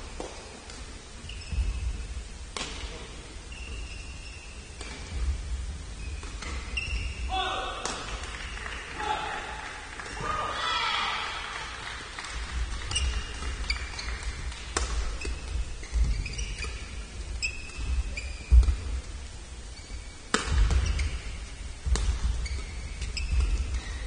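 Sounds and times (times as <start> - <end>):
shoes squeaking on court: 1.2 - 7.3, 12.4 - 24.0
racket striking shuttlecock: 7.8 - 8.4, 14.5 - 15.5, 20.3 - 21.0.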